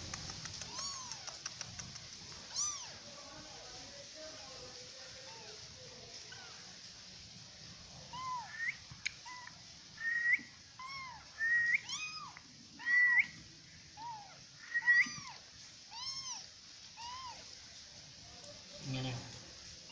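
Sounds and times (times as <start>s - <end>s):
kitten mewing: 0.5s - 1.6s.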